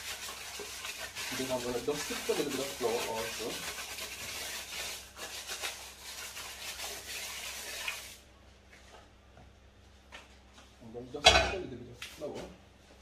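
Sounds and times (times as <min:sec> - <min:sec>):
paper rubbing inside metal pan: 0:00.0 - 0:08.2.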